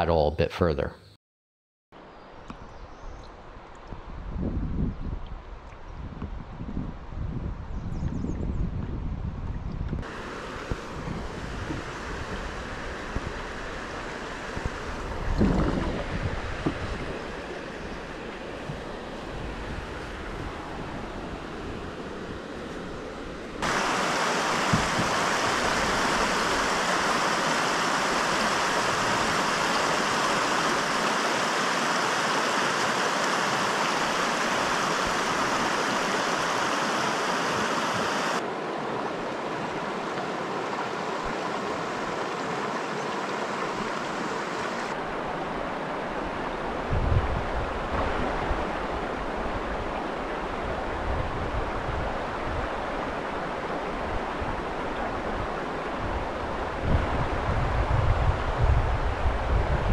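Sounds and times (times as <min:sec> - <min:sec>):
water rushing over rocks: 0:10.0 - 0:19.0, 0:23.6 - 0:57.7
low thumps: 0:15.3 - 0:17.2.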